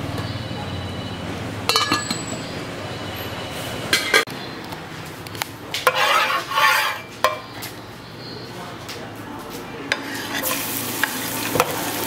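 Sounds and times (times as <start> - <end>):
metal kitchenware clinking: 1.7 - 2.6, 3.9 - 4.3
rattling and scraping in a pan: 5.8 - 7.1, 9.9 - 11.8.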